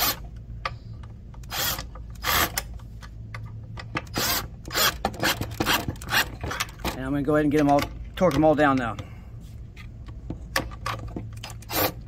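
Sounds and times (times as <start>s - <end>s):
cordless drill driving bolts: 1.4s - 2.6s, 4.0s - 6.8s, 11.4s - 12.0s.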